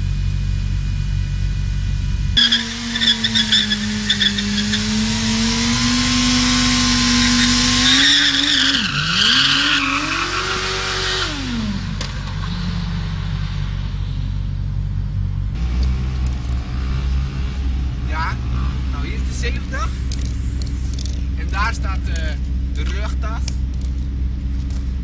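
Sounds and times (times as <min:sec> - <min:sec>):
motorcycle engine revving high: 0:00.0 - 0:14.3, 0:15.5 - 0:21.1
tyre squealing on asphalt: 0:02.4 - 0:12.8.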